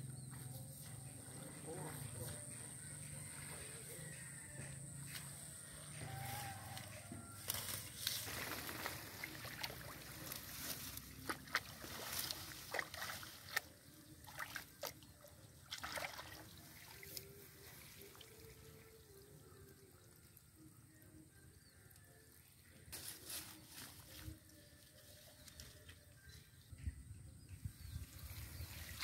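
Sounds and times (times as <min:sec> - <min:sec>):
grass and leaves rustling: 0:05.0 - 0:15.0, 0:22.9 - 0:26.1
hands splashing in muddy water: 0:08.2 - 0:18.5.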